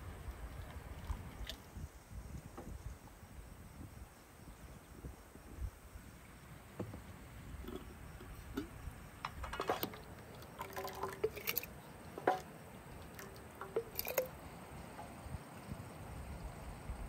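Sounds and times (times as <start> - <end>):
wet jam squelching and dripping: 9.5 - 14.3
spoon clinking against jar: 10.6 - 12.5, 13.1 - 14.4.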